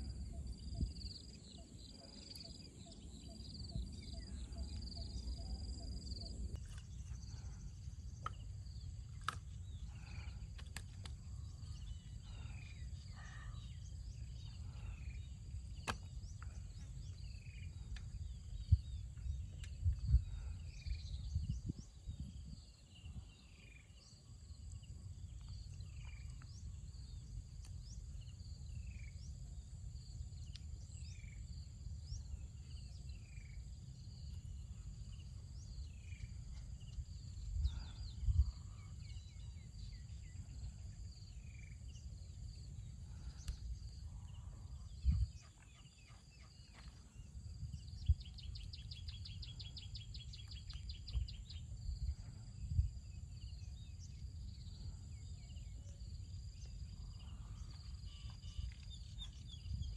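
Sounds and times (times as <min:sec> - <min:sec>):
high insect drone: 0:23.0 - 0:59.9.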